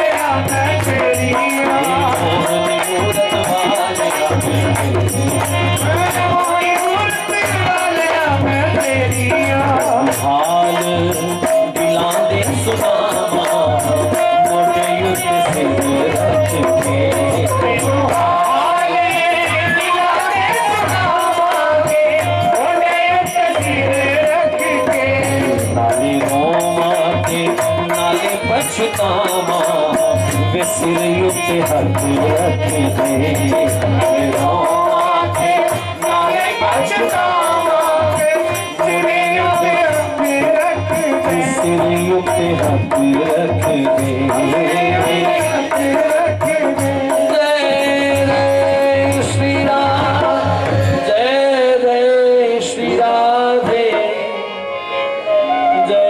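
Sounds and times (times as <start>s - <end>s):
hand percussion rhythm: 0.0s - 54.6s.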